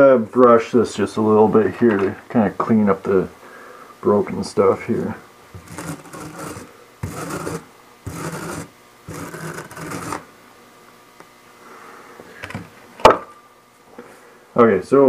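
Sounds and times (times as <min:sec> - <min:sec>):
wire brush scrubbing rock: 0:05.6 - 0:10.3.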